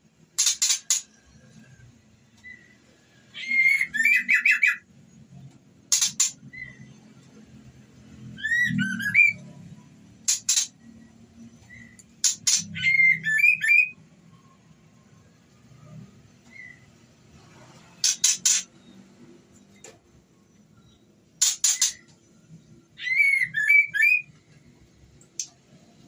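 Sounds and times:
bird whistled notes: 0:08.4 - 0:09.5, 0:23.0 - 0:24.3
bird clicking chips: 0:10.3 - 0:10.7.

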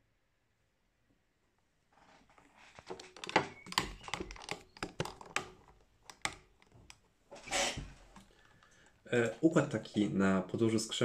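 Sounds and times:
typing on a computer keyboard: 0:03.0 - 0:07.0.

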